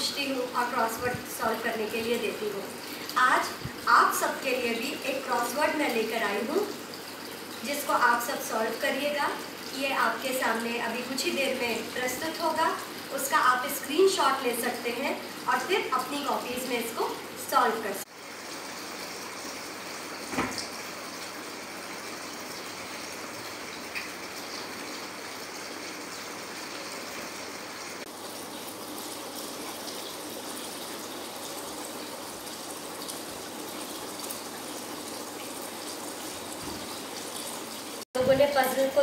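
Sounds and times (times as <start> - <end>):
fountain water trickling and splashing: 0.0 - 39.0
brief knock: 20.3 - 20.6.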